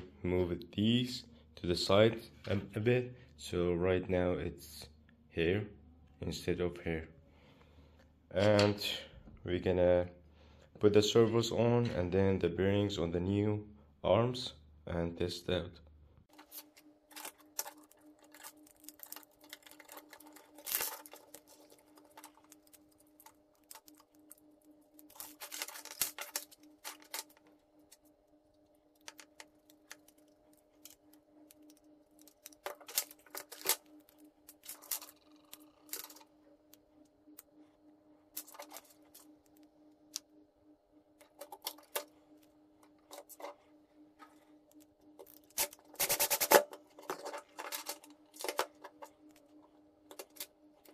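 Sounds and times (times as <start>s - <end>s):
faint hum: 0.0s - 50.9s
plastic parts and screws clicking: 16.3s - 24.4s, 25.0s - 28.0s, 28.9s - 36.3s, 45.2s - 49.4s.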